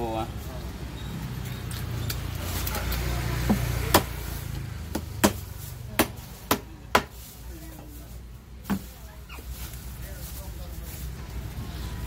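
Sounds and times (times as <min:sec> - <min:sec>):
knife chopping on wooden block: 0:04.9 - 0:05.4, 0:06.0 - 0:07.1.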